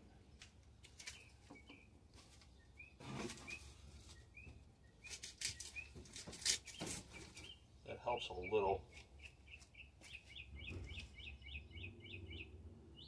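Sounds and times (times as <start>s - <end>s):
small bird chirping: 0.1s - 13.0s
rustling: 2.1s - 7.6s.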